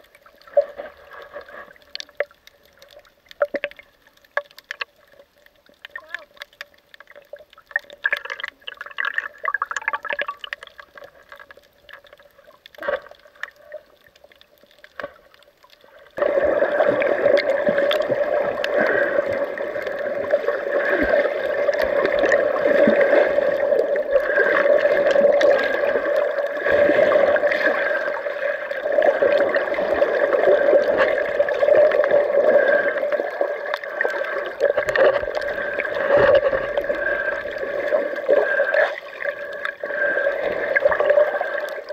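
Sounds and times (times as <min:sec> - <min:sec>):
faint underwater crackles: 0:00.0 - 0:41.9
muffled rush of water: 0:00.0 - 0:41.9.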